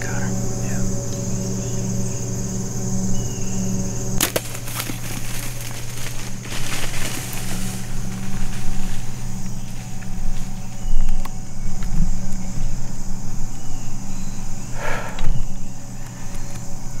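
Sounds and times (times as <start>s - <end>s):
insects buzzing: 0.0s - 17.0s
animal crashing through brush: 4.2s - 10.6s.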